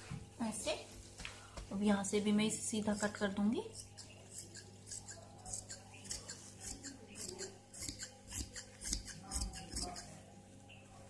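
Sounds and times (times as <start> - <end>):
scissors snipping fabric: 2.8 - 10.1.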